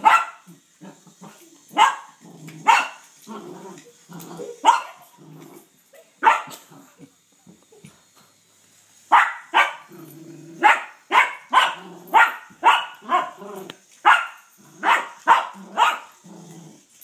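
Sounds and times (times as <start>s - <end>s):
small dog barking: 0.0s - 0.4s, 1.7s - 3.0s, 4.6s - 5.0s, 6.2s - 6.7s, 9.1s - 9.9s, 10.6s - 13.4s, 14.0s - 16.1s.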